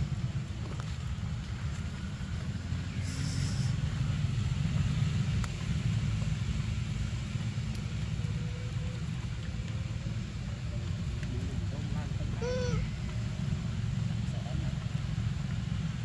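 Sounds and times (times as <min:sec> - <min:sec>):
short high hiss: 0:03.0 - 0:03.8.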